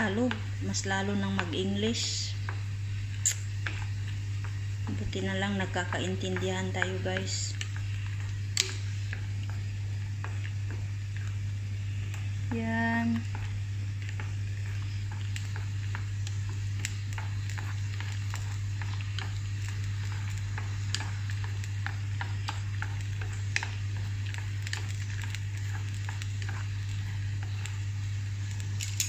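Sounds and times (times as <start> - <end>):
boiling water bubbling: 0.0 - 29.0
steady low hum: 0.0 - 29.0
chopsticks clicking against pot: 3.2 - 3.8, 28.5 - 29.0.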